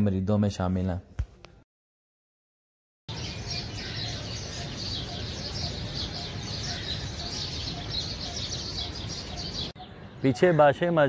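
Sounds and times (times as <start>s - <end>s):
small birds chirping: 3.1s - 11.0s.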